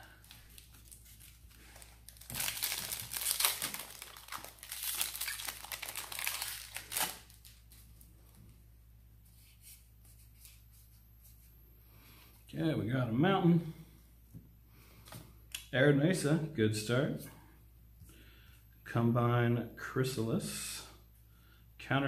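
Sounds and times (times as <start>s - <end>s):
foil wrapper crinkling: 0.0s - 7.9s.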